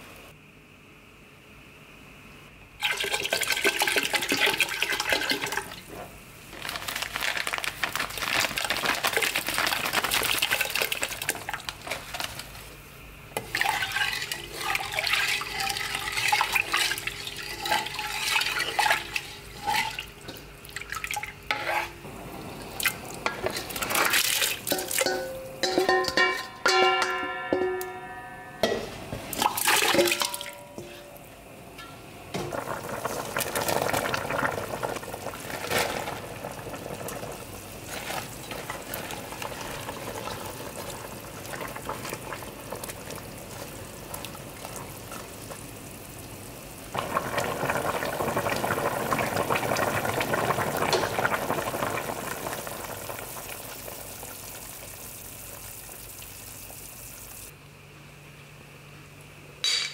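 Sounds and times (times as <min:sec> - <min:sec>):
liquid bubbling in a pot: 0:02.8 - 0:06.6, 0:07.7 - 0:27.1, 0:29.3 - 0:57.6
wooden spoon stirring: 0:13.5 - 0:20.0, 0:21.5 - 0:22.0.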